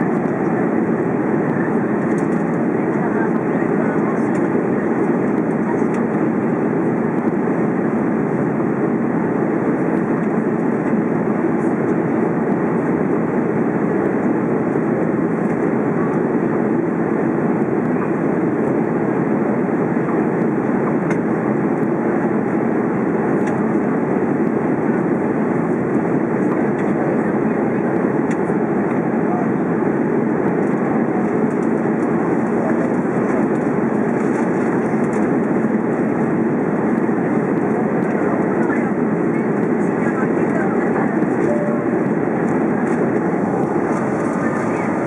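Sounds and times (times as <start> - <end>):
aircraft cabin engine drone: 0.0 - 45.0
rushing air: 42.0 - 45.0.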